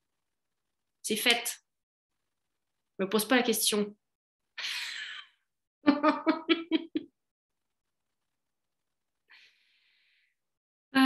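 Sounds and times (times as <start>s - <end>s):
woman laughing: 5.9s - 7.2s.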